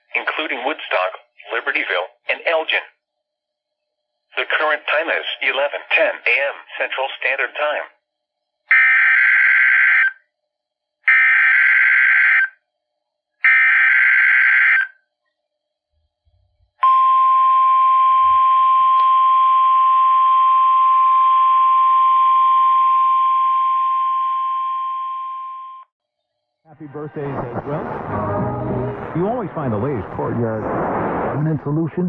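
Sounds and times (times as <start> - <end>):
steady warning alarm tone: 8.7 - 10.2, 11.1 - 12.6, 13.4 - 15.0, 16.8 - 25.9.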